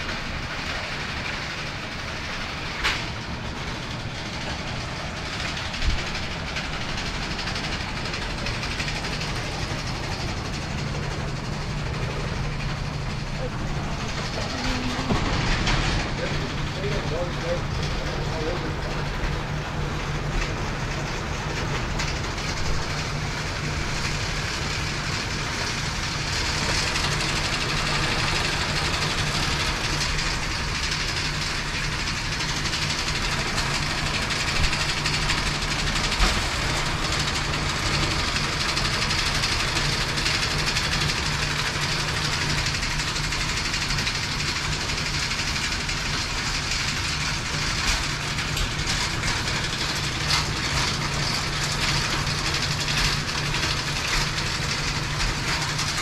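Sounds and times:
constant hum: 0.0 - 56.0
conveyor chain rattling: 0.0 - 56.0.

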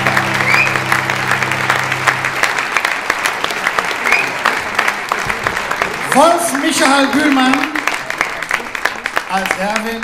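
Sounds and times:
band holding a chord: 0.0 - 3.5
audience whooping: 0.0 - 5.9
audience applauding: 0.0 - 10.0.

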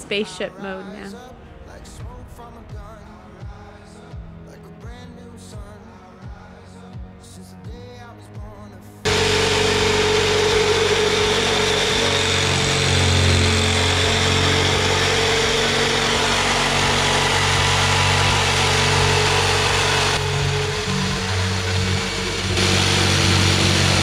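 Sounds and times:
jigsaw cutting plywood: 9.1 - 24.0.

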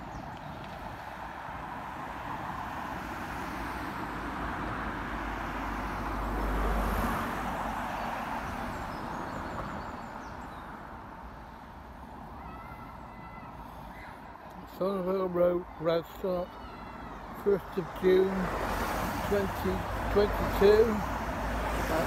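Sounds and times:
faint birdsong: 0.0 - 1.1, 7.8 - 18.5
car passing by: 0.6 - 10.8, 17.5 - 22.0.

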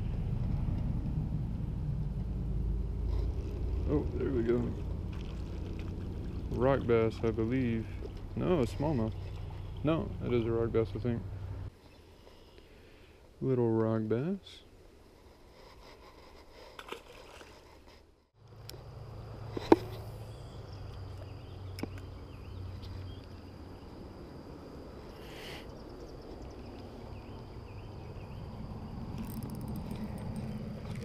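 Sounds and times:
low outdoor rush: 0.0 - 12.4
insects droning: 2.1 - 17.8, 18.4 - 31.0.

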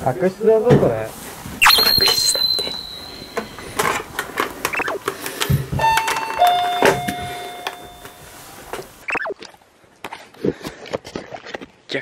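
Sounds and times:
two-tone doorbell chime: 1.6 - 3.7, 5.8 - 8.4.

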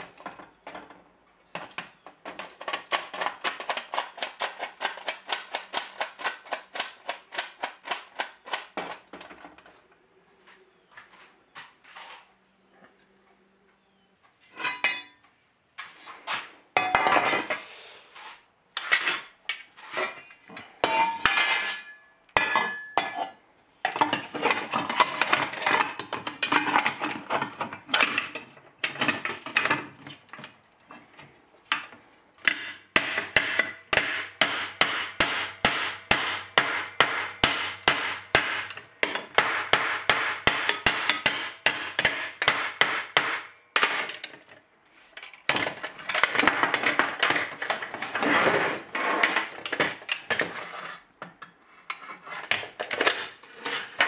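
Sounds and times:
hammer striking steel plate: 32.5 - 44.1.

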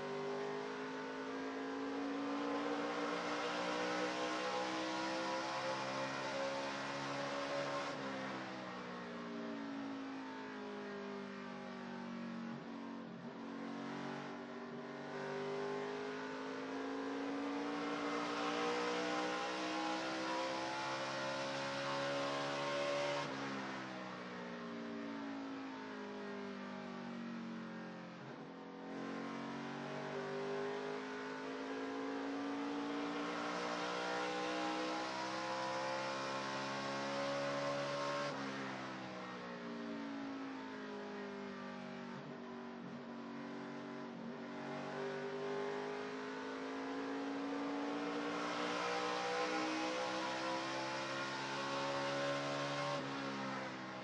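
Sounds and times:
race truck engine at speed: 0.2 - 8.7, 13.3 - 23.7, 30.3 - 39.1, 44.4 - 53.6.

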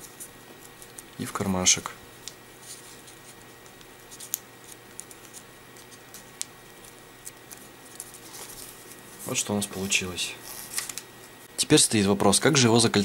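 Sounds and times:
paper rustling and crinkling: 2.6 - 11.0.

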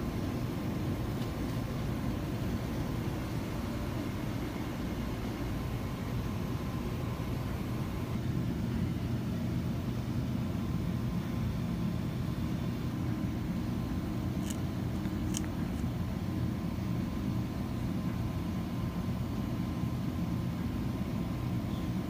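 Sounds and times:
refrigerator hum and rumble: 0.0 - 22.0.

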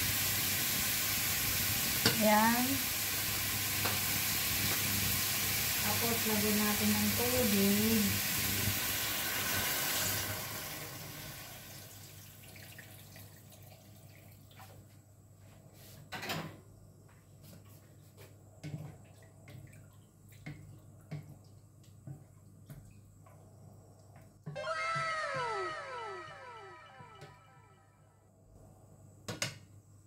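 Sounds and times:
sizzling in a wok: 0.0 - 12.3
water poured into wok: 8.1 - 14.7.

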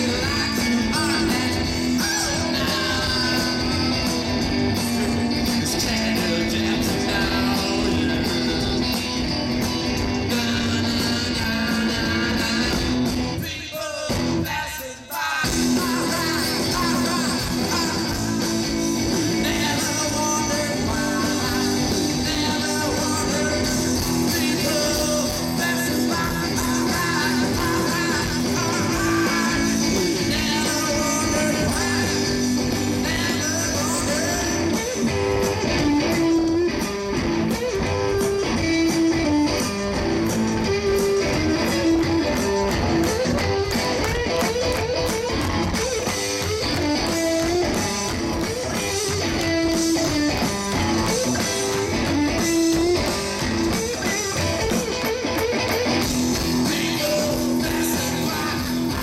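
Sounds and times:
drum kit: 0.0 - 14.6, 15.4 - 59.0
electric guitar: 0.0 - 59.0.

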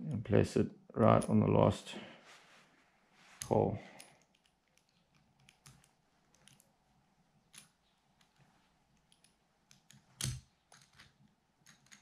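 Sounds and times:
small metal screws clicking: 3.4 - 6.7, 9.0 - 12.0.

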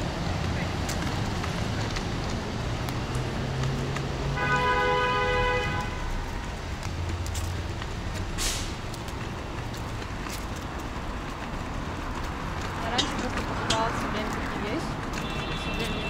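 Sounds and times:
city street traffic: 0.0 - 16.0
car horn: 4.3 - 6.2, 15.1 - 16.0.

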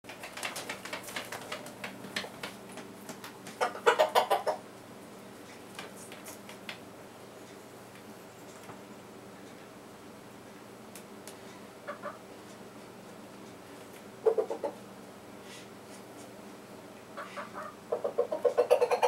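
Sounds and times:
rooster clucking: 3.5 - 4.7, 11.8 - 12.3, 14.2 - 14.8, 17.1 - 19.0.

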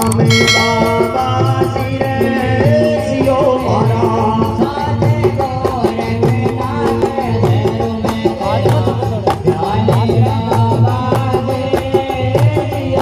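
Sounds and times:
hand cymbals jingling: 0.0 - 2.9.

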